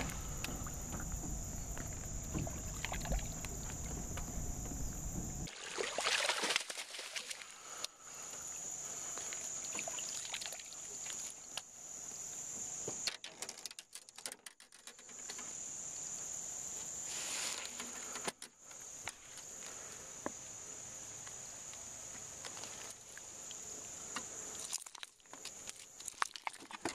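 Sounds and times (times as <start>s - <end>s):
water splashing: 0.0s - 7.8s
insects chorus: 0.0s - 13.6s, 14.7s - 26.9s.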